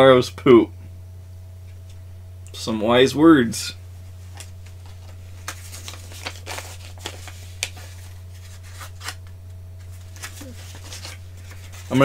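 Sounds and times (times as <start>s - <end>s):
steady low hum: 0.0s - 12.0s
paper rustling: 4.2s - 12.0s.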